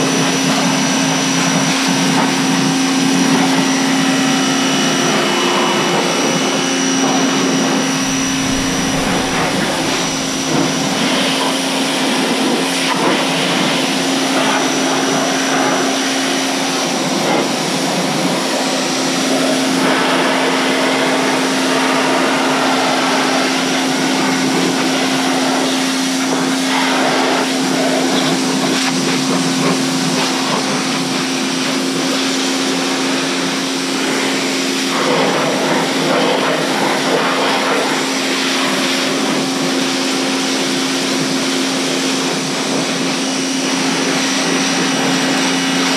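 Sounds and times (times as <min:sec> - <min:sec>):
pressure washer motor humming: 0:01.3 - 0:12.5.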